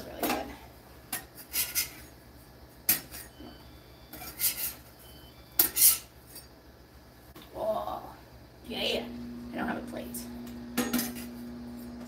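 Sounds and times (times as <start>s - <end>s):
metal spatula scraping on griddle: 1.1s - 2.2s, 4.1s - 6.5s.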